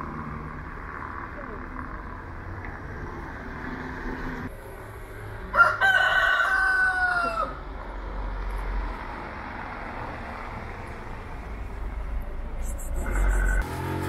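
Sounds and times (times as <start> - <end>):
rooster crowing: 5.5 - 7.6.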